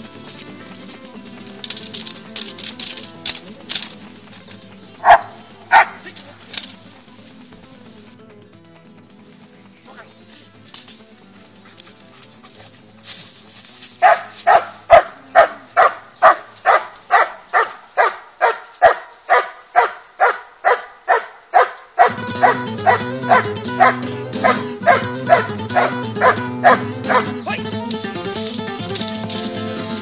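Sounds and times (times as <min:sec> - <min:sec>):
guitar music: 0:00.0 - 0:20.8, 0:22.0 - 0:30.0
dog barking: 0:05.0 - 0:06.1, 0:14.0 - 0:27.4.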